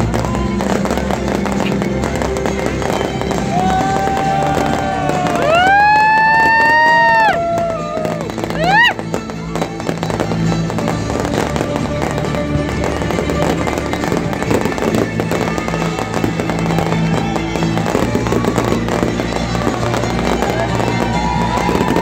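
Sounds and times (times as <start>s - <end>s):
fireworks bursts and pops: 0.0s - 22.0s
music playing: 0.0s - 22.0s.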